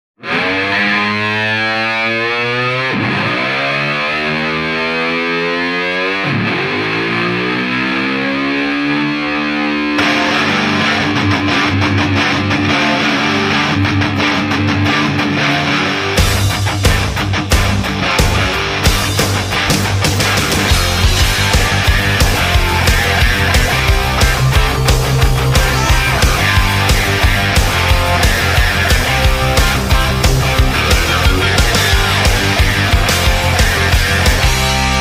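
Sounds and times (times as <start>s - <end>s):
distorted electric guitar bending notes: 0.2s - 35.0s
rock drums: 9.2s - 35.0s.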